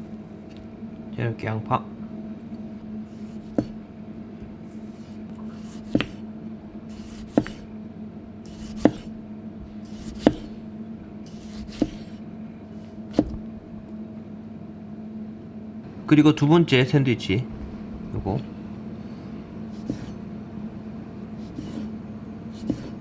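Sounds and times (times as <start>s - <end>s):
steady low hum: 0.0s - 23.0s
knife knocking on cutting board: 5.9s - 6.2s, 13.1s - 13.4s.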